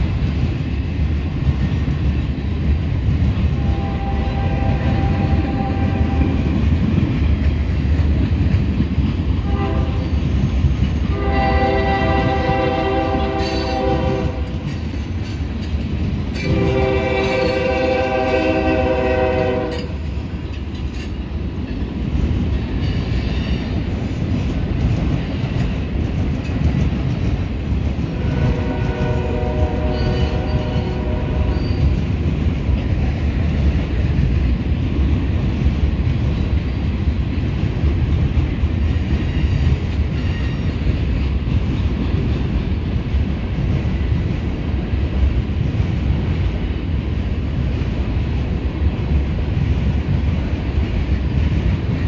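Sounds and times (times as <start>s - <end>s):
freight train rumbling on rails: 0.0s - 52.0s
locomotive horn: 3.6s - 6.3s, 9.4s - 10.1s, 11.1s - 14.6s, 16.4s - 19.9s, 28.1s - 31.8s.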